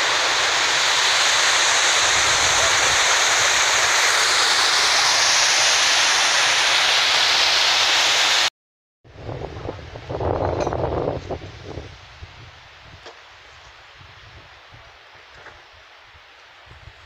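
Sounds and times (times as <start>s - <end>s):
floodwater rushing: 0.0s - 8.5s.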